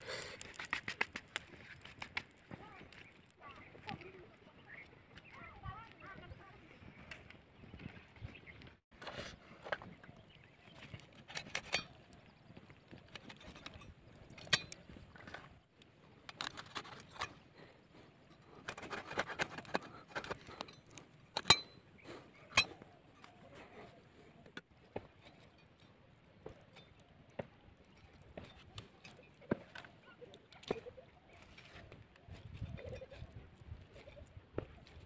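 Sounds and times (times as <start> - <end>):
blade scraping chicken skin: 0.1 - 2.4, 18.5 - 20.7.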